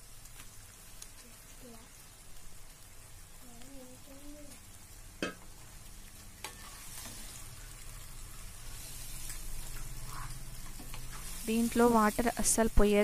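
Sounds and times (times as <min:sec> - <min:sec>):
chicken sizzling in oil: 0:00.0 - 0:13.0
wooden spatula knocking pan: 0:05.2 - 0:05.5.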